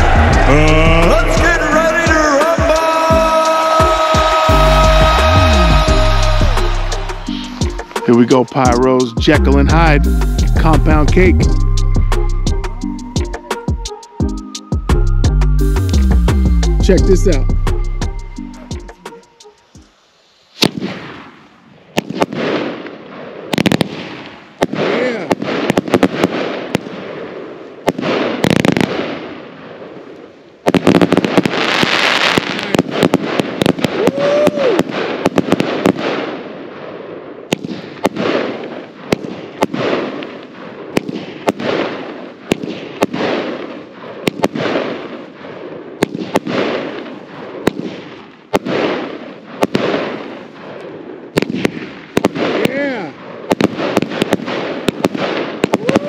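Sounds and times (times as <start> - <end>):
crackling firework breaks: 30.7 - 36.3, 51.4 - 56.0.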